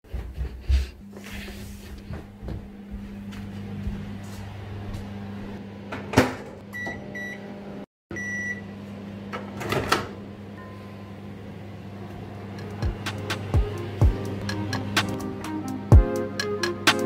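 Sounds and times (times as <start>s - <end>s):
microwave oven humming: 1.0s - 16.6s.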